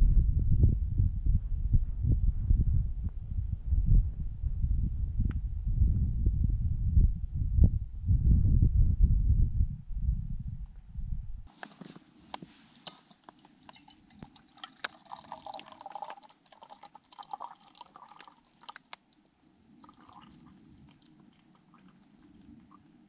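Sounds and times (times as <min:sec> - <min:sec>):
liquid trickle: 0:12.6 - 0:23.0
faint clicks and drips: 0:12.7 - 0:23.0.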